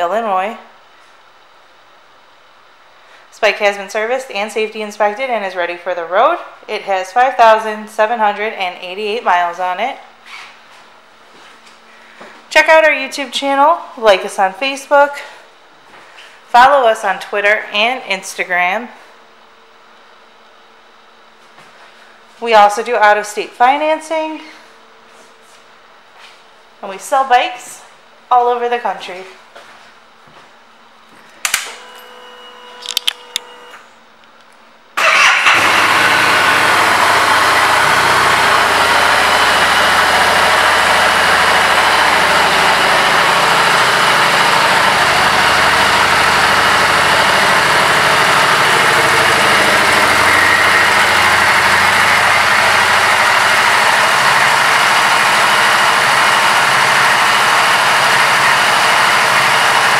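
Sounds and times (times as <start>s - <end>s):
motorcycle engine starting and idling: 35.0s - 59.9s.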